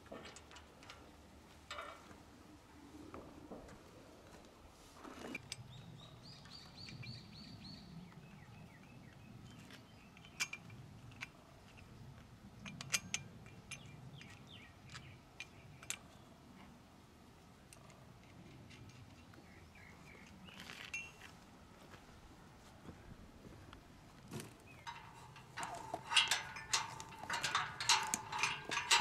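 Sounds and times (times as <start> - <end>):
small birds chirping: 5.6 - 10.5, 13.5 - 16.3, 18.9 - 21.2, 24.6 - 26.0.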